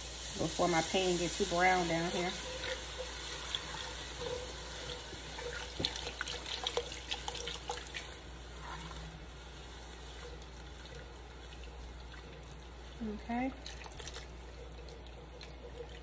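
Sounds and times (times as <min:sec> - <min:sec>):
broth pouring into a pot: 0:00.0 - 0:16.0
spatula stirring and scraping pot: 0:00.5 - 0:13.1.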